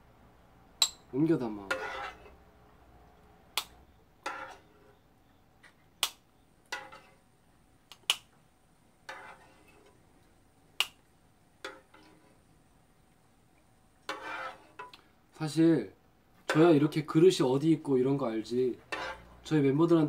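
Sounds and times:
spoon scraping: 1.6 - 2.4, 4.2 - 5.0, 9.0 - 10.0, 11.6 - 12.5, 14.0 - 15.0, 18.8 - 19.5.

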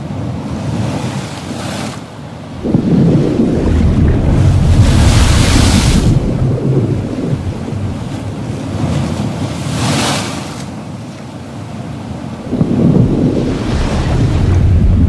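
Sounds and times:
ocean waves washing: 0.0 - 15.0
low rumble: 2.6 - 8.5, 12.5 - 15.0.

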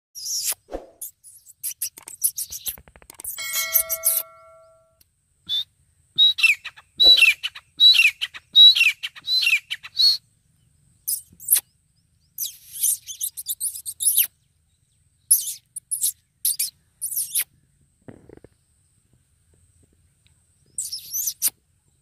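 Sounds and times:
harsh scratchy bird calls: 0.2 - 4.7, 11.0 - 11.7, 12.4 - 14.4, 15.3 - 18.6, 20.8 - 21.5
bird calling high falling notes: 3.4 - 5.0.

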